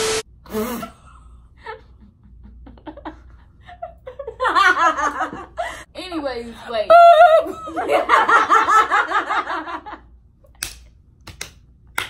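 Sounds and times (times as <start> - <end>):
women laughing: 1.6 - 5.9, 6.9 - 10.0.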